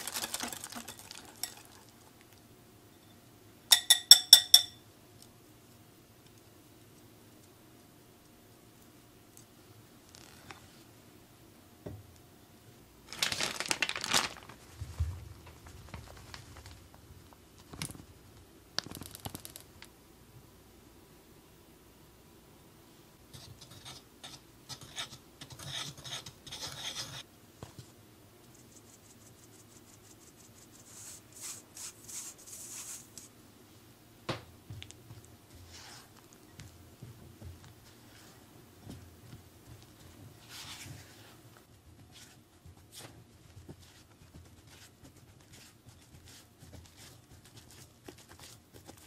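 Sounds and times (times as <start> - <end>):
flour rasping through a sieve: 0.0 - 1.9, 28.6 - 33.3, 35.5 - 36.3, 39.7 - 49.0
flour bag crinkling: 0.0 - 2.0, 13.0 - 18.1
spatula scraping batter in bowl: 23.4 - 27.2.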